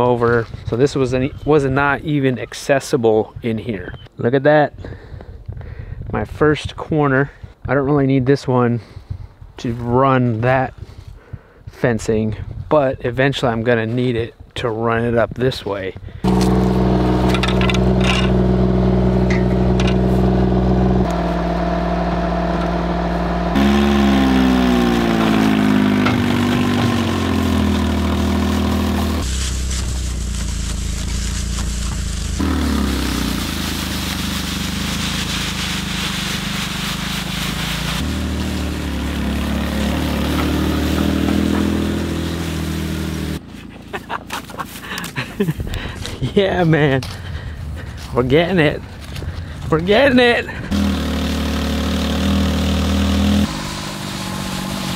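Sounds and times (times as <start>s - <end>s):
truck engine revving under load: 16.2s - 43.9s, 50.6s - 54.9s.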